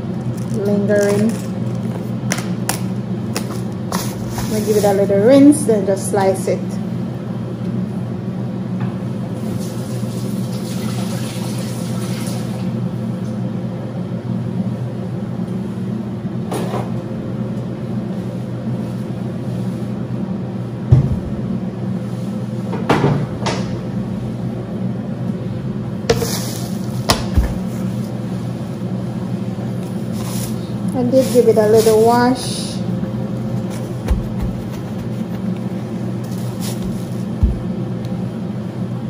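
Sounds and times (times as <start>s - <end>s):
low mechanical hum: 0.0s - 39.0s.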